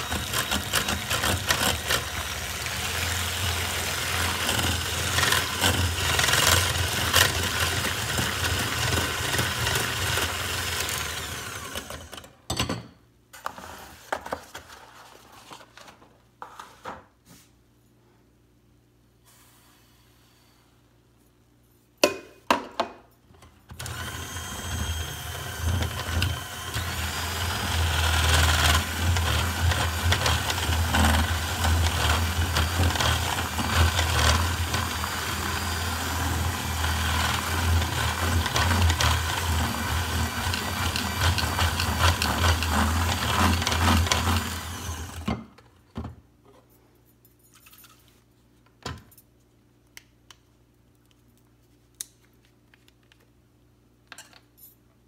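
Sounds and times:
electric hand mixer whirring: 0:00.0 - 0:12.3, 0:23.8 - 0:45.4.

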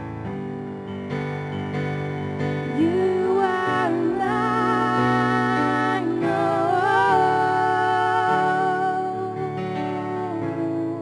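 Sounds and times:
instrumental backing: 0:00.0 - 0:11.0
woman singing: 0:02.7 - 0:11.0.

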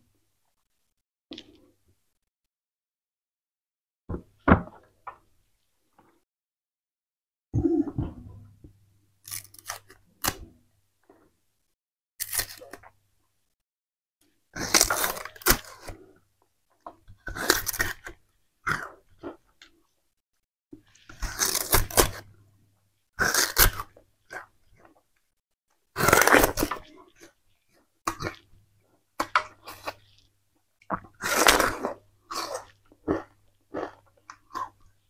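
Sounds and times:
cane rind torn with teeth: 0:09.2 - 0:10.5, 0:12.2 - 0:13.0, 0:21.1 - 0:22.3, 0:23.2 - 0:24.4, 0:26.0 - 0:26.9
sugarcane crunched and chewed: 0:09.2 - 0:10.6, 0:12.2 - 0:13.0, 0:14.6 - 0:16.2, 0:17.2 - 0:19.4, 0:20.9 - 0:22.3, 0:23.2 - 0:25.0, 0:25.9 - 0:28.5, 0:30.9 - 0:35.0.

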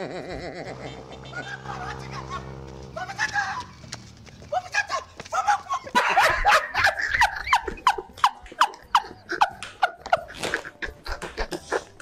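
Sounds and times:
woman laughing hard: 0:05.8 - 0:11.9.

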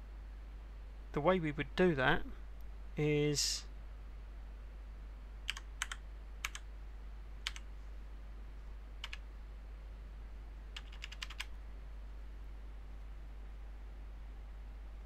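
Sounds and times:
keyboard typing: 0:05.5 - 0:06.6, 0:07.4 - 0:07.7, 0:09.0 - 0:09.2, 0:10.8 - 0:11.5.

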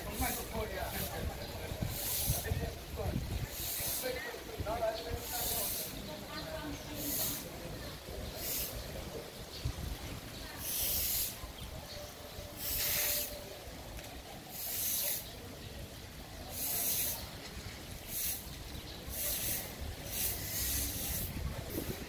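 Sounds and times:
short bursts of hissing: 0:00.0 - 0:02.5, 0:03.4 - 0:04.2, 0:05.2 - 0:06.2, 0:06.8 - 0:07.6, 0:08.3 - 0:08.9, 0:10.6 - 0:11.6, 0:12.5 - 0:13.5, 0:14.5 - 0:15.4, 0:16.4 - 0:17.4, 0:18.0 - 0:22.0.

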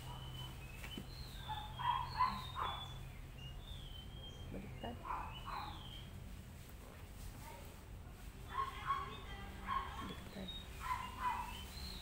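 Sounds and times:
birds chirping: 0:00.0 - 0:06.2, 0:08.5 - 0:12.0
dog barking: 0:01.4 - 0:03.0, 0:05.0 - 0:05.8, 0:08.5 - 0:10.2, 0:10.8 - 0:11.6.

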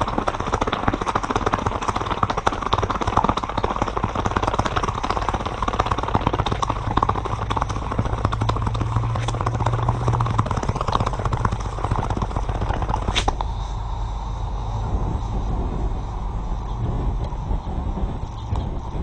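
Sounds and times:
hot metal crackling and sizzling: 0:14.9 - 0:19.0.

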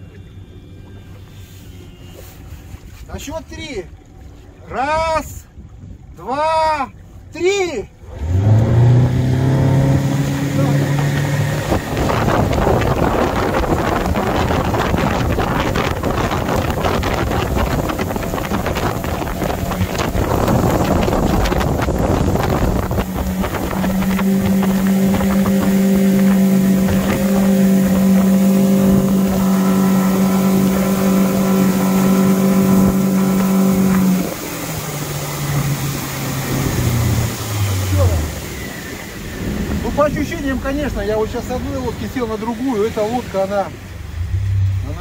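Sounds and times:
outboard motor at full throttle: 0:00.0 - 0:45.0
wind and water rushing: 0:00.0 - 0:45.0.

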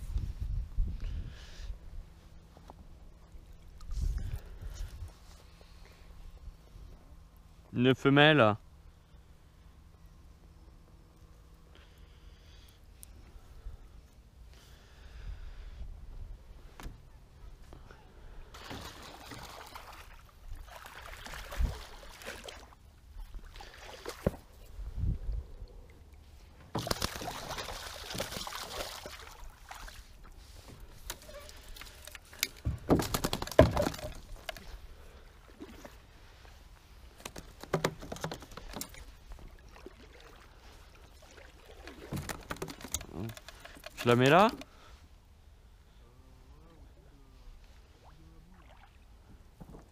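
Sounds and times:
water sloshing and splashing: 0:18.5 - 0:24.8, 0:25.7 - 0:44.6, 0:48.0 - 0:49.9.

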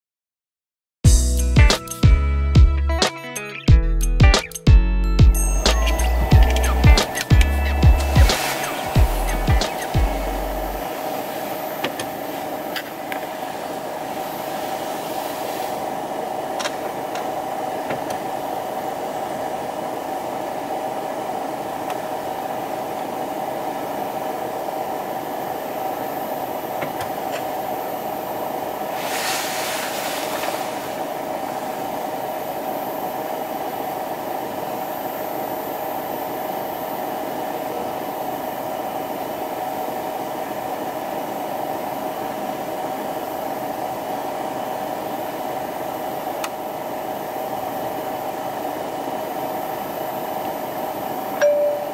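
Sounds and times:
car cabin hum and hiss: 0:05.7 - 0:18.2.

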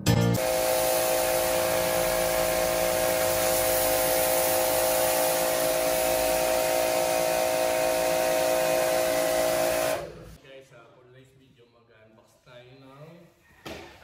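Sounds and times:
pressure washer motor hum: 0:00.3 - 0:10.4
water jet hissing on concrete: 0:00.4 - 0:10.4.

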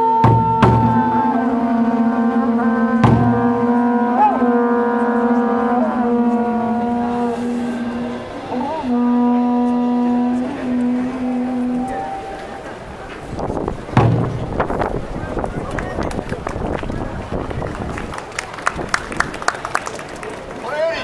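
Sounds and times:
conch-shell trumpets blowing: 0:00.0 - 0:15.2
large drum strike: 0:00.2 - 0:10.9, 0:13.7 - 0:15.0.

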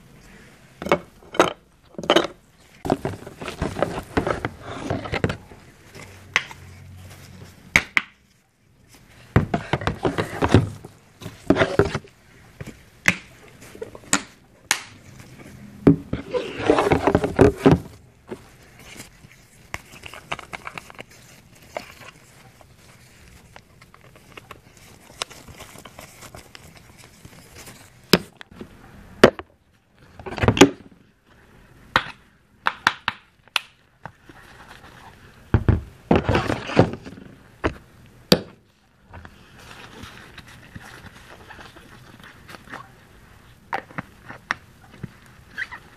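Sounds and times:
rustling and rattling: 0:00.8 - 0:07.6, 0:15.0 - 0:28.2
plastic bottles clicking and tapping: 0:09.3 - 0:13.3.

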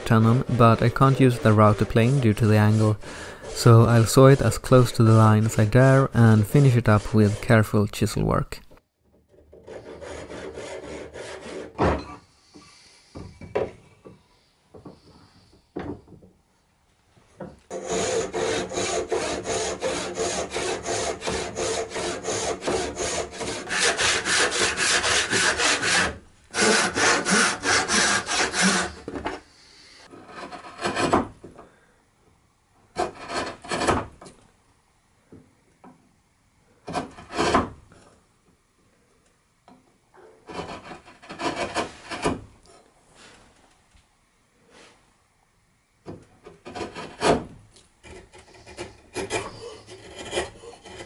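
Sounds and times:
chisel scraping wood: 0:00.0 - 0:07.8, 0:09.2 - 0:12.2, 0:17.7 - 0:31.6, 0:32.9 - 0:34.4, 0:36.8 - 0:38.1, 0:40.2 - 0:42.9, 0:46.4 - 0:51.0
hand saw cutting wood: 0:00.0 - 0:07.8, 0:09.3 - 0:11.8, 0:17.7 - 0:29.4, 0:30.0 - 0:31.3, 0:32.9 - 0:34.3, 0:36.9 - 0:37.8, 0:40.2 - 0:42.5, 0:46.5 - 0:51.0.

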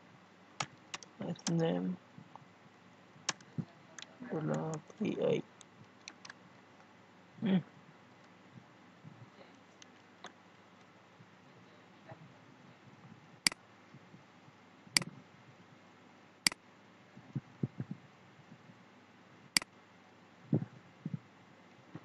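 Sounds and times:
faint steady hiss: 0:00.0 - 0:22.0
computer mouse clicking: 0:00.6 - 0:01.6, 0:03.3 - 0:05.0, 0:05.6 - 0:06.4.

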